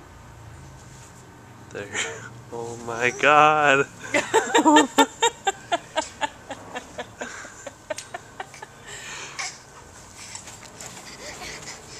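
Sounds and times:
person laughing: 4.0 - 8.8
soft breath: 8.8 - 11.9.

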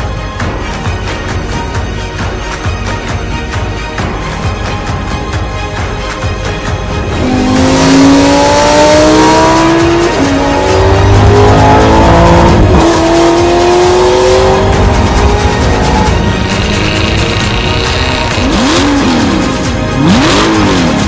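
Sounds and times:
background music: 0.0 - 21.0
car engine accelerating hard: 7.1 - 21.0.

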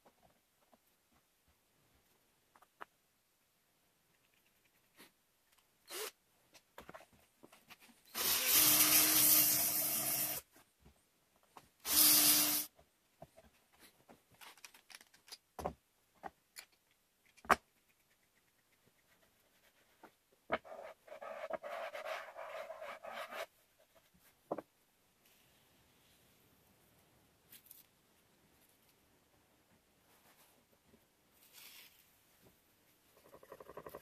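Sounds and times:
power drill boring into wood: 8.1 - 10.4, 11.8 - 12.7.

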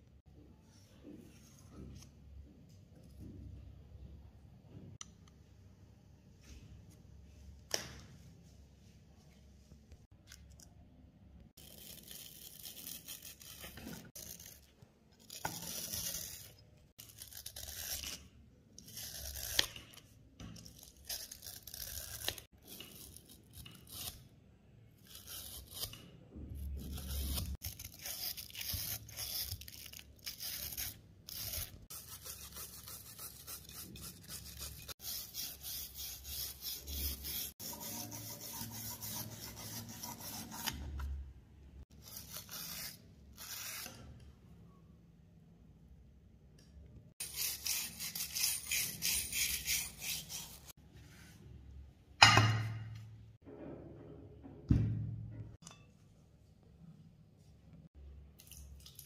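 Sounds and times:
wire brush scrubbing steel: 30.6 - 40.8.

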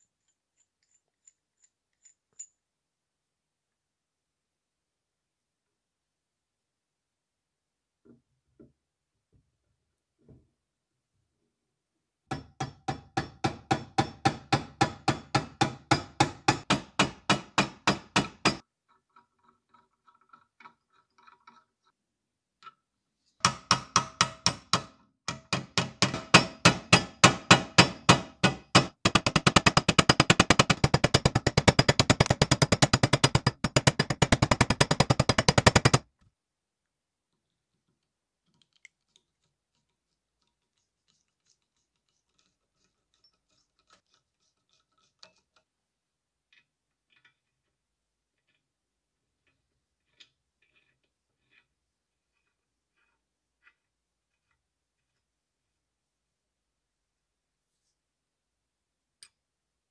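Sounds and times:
hammer tapping metal: 12.3 - 18.6, 23.4 - 36.0.

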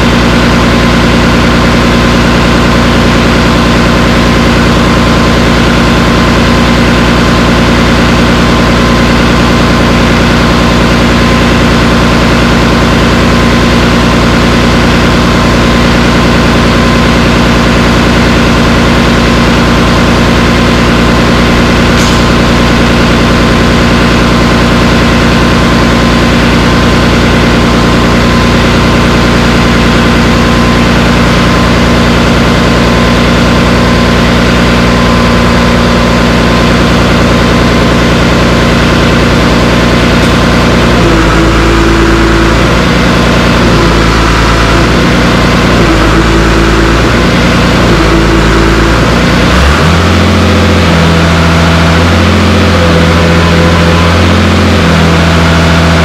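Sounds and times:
diesel engine running: 0.0 - 56.0
strong higher tone: 0.0 - 56.0.

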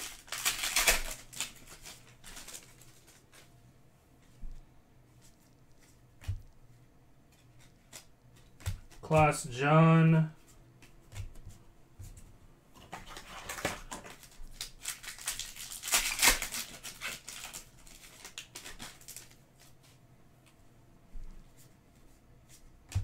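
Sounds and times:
foil wrapper tearing and crinkling: 0.0 - 3.5, 13.0 - 19.7.

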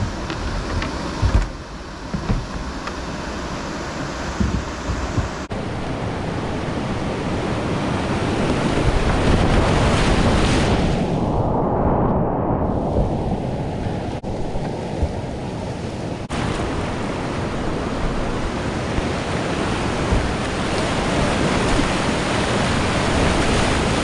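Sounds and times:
water splashing over bow: 0.0 - 5.5, 8.0 - 11.0, 12.8 - 24.0
wind buffeting microphone: 4.0 - 24.0
whitewater rushing: 13.8 - 24.0.

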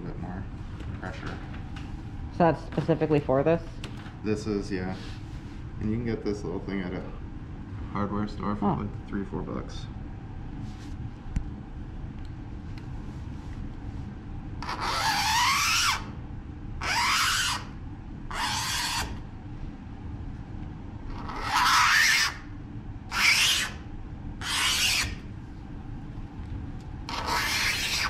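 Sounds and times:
tool scoring plastic sheet: 27.1 - 28.0.

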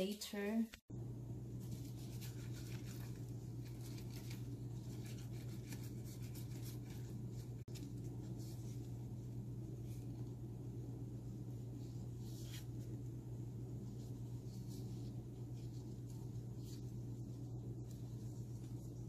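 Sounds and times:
steady low hum: 0.0 - 19.0
leaves crinkling and rustling: 1.6 - 9.0.

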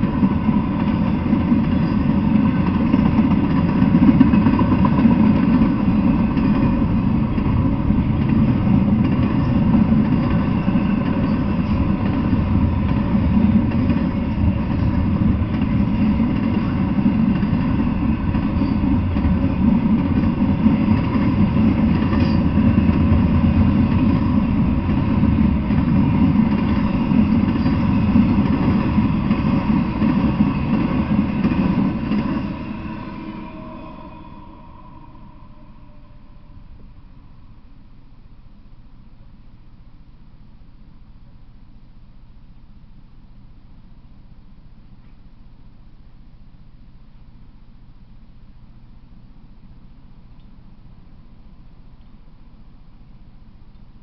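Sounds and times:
train wheels rolling on rails: 0.0 - 37.1.

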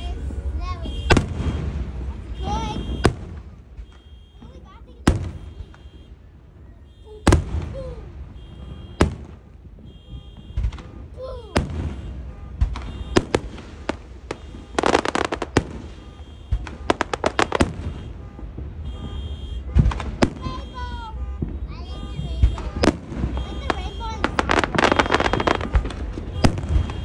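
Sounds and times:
fireworks bangs and crackling: 0.0 - 27.0
car alarm chirping: 2.3 - 4.5, 5.2 - 7.4, 8.3 - 9.2, 9.8 - 11.1, 14.4 - 19.8, 20.4 - 27.0.

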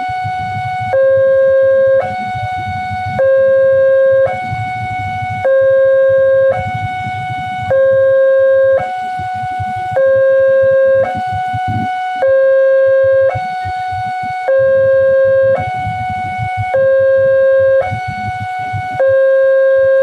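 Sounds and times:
level crossing two-tone alarm: 0.0 - 20.0.

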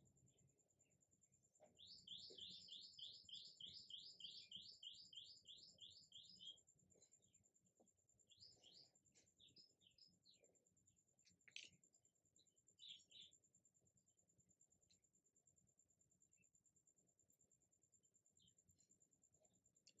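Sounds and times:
bird song high repeated notes: 1.6 - 6.6, 8.3 - 10.5, 12.8 - 13.3
bird chirps: 1.6 - 10.6, 12.4 - 13.4.

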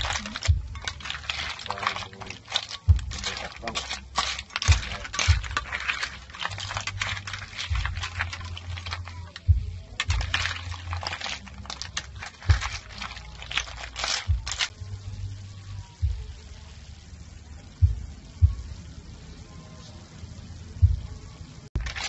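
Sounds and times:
water poured into pan: 0.0 - 9.4
shells clattering in metal pan: 0.0 - 14.7, 21.8 - 22.0.

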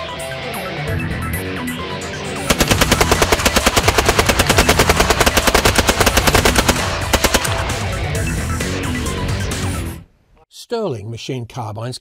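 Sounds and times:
submachine gun automatic fire: 2.5 - 7.9.

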